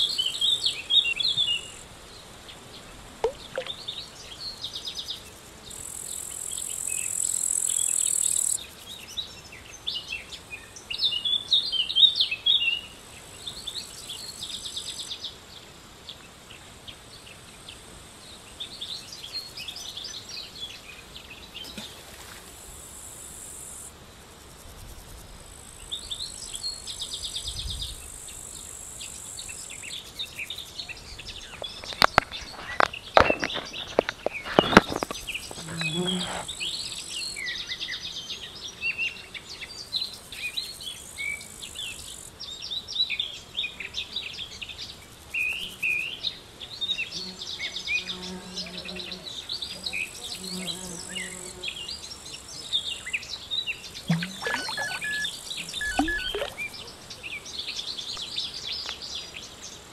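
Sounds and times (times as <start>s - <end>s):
insects buzzing: 0.0s - 59.9s
birds chirping and singing: 54.1s - 57.2s.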